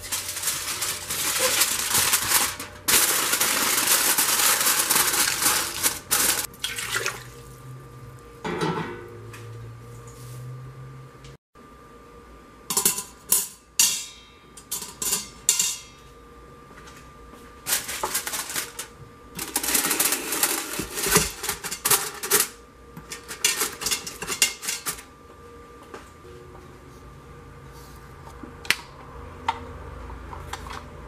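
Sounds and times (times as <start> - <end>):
aluminium foil crinkling: 0.0 - 6.5, 17.7 - 22.5.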